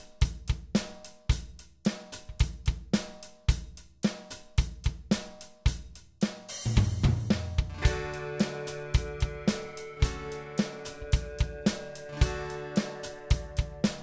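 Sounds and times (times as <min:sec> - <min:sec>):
drum kit beat: 0:00.0 - 0:14.0
cymbal wash: 0:07.8 - 0:14.0.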